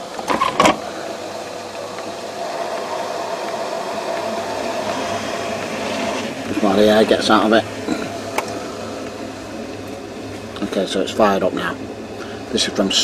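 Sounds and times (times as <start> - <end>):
boiler hiss and hum: 0.0 - 13.0.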